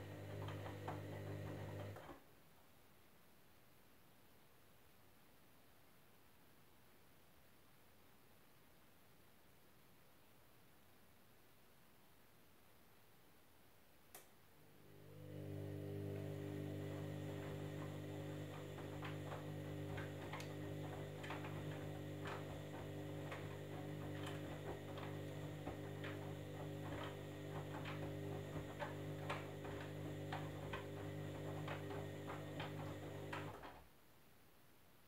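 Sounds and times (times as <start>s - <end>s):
washing machine motor hum: 0.0s - 2.1s, 14.6s - 33.8s
wet load tumbling clicks: 16.3s - 33.8s.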